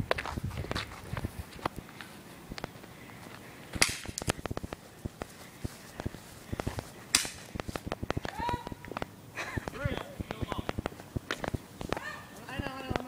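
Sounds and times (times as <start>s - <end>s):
footsteps on asphalt: 0.0s - 13.0s
airsoft gun shots: 3.8s - 4.3s.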